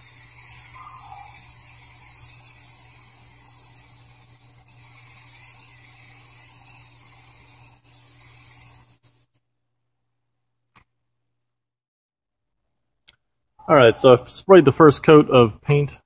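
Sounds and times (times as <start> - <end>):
spray-paint can hissing: 0.0 - 9.4.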